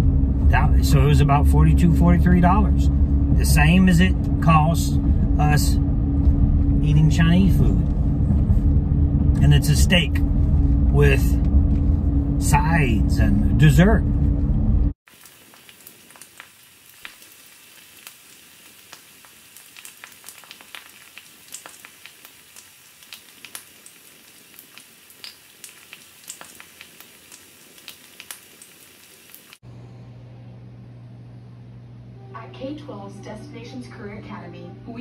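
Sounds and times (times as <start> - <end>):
low steady hum: 0.0 - 15.0, 29.6 - 35.0
steaks sizzling on grill: 15.1 - 29.6.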